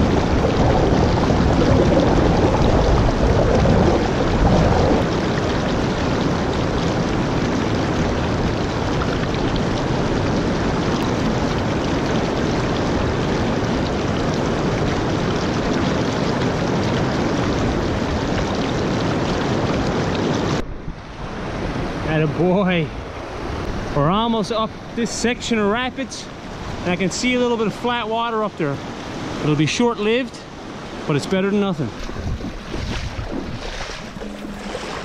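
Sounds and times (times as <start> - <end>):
river rapids rushing: 23.2 - 35.0.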